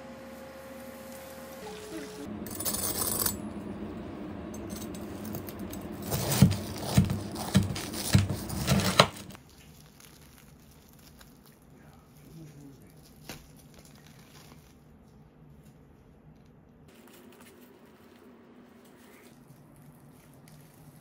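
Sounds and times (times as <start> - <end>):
knife crunching through crisp crust: 6.0 - 14.8.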